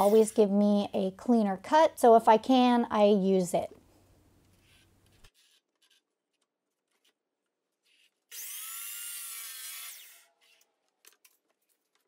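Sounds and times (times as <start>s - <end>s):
miter saw cutting plywood: 7.8s - 10.7s.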